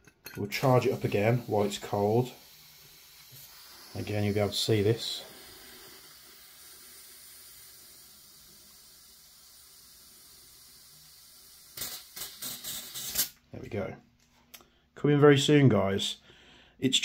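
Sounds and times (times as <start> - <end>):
gas hissing from a bottle: 0.3 - 13.4.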